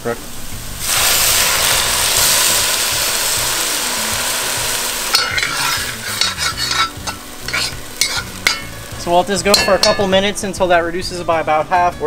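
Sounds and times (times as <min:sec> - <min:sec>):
liquid sizzling in hot pot: 0:00.0 - 0:11.0
spoon scraping and stirring pot: 0:05.1 - 0:10.2.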